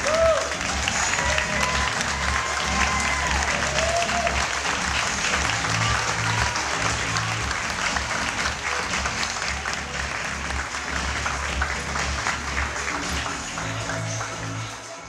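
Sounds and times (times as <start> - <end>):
audience applauding: 0.0 - 15.0
background music with low bass: 0.0 - 15.0.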